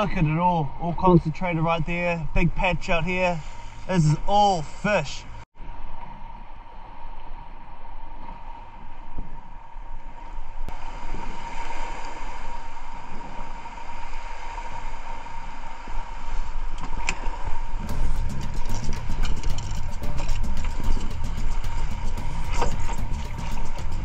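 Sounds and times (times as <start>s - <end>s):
water: 0.0s - 24.0s
wind noise: 17.4s - 24.0s
fast regular ticking: 17.9s - 24.0s
outboard motor running: 17.9s - 24.0s.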